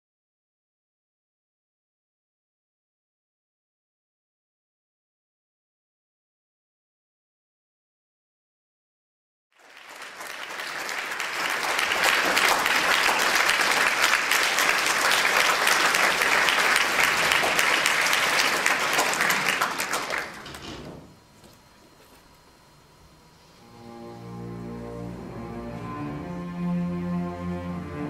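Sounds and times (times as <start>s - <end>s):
audience applauding: 9.6s - 20.9s.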